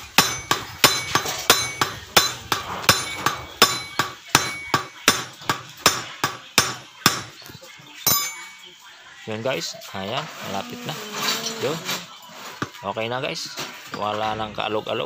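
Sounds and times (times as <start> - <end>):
hammer striking metal with ring: 0.0 - 7.4, 8.1 - 8.7.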